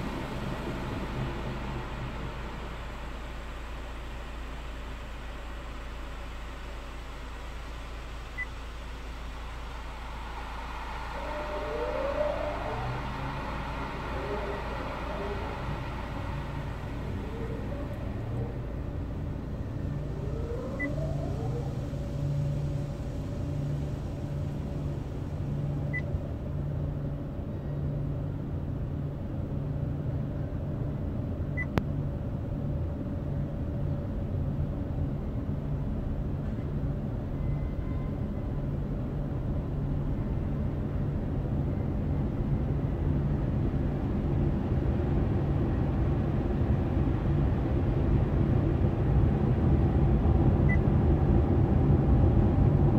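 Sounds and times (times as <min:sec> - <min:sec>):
car wash machinery rumble: 0:00.0 - 0:52.9.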